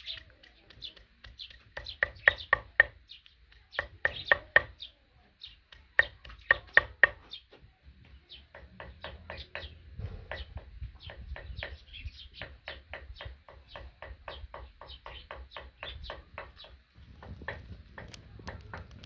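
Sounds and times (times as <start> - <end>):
pestle pounding in wooden mortar: 0.0 - 4.9, 5.5 - 7.3, 12.4 - 19.0
small birds chirping: 0.0 - 19.0.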